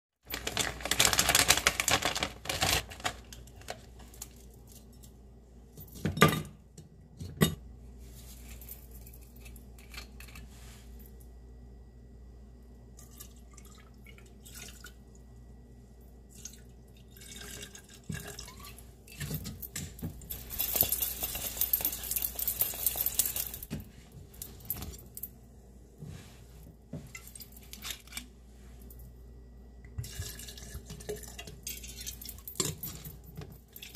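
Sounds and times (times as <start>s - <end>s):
frozen fruit clattering into shaker: 0.3s - 3.9s, 20.3s - 23.6s
liquor pouring: 13.0s - 15.0s, 16.3s - 18.8s, 30.0s - 32.1s.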